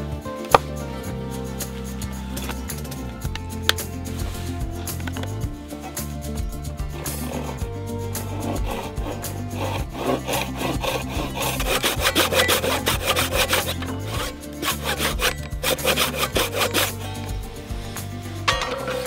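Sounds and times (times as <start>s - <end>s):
handsaw cutting wood: 6.9s - 18.2s.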